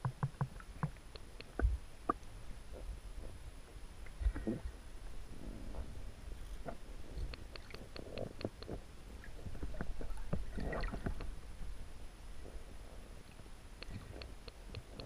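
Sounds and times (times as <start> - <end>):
sharp underwater ticks: 0.0 - 2.3, 6.7 - 8.8, 13.8 - 15.0
low underwater rumble: 0.0 - 14.1
water bubbling and gurgling: 7.2 - 11.5.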